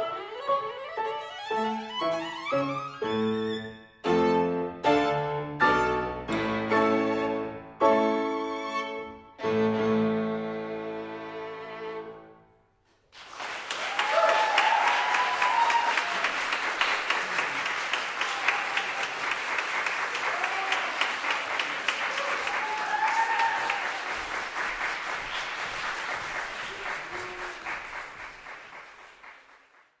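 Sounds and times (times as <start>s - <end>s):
audience applauding: 13.1s - 30.0s
people cheering: 13.2s - 29.6s.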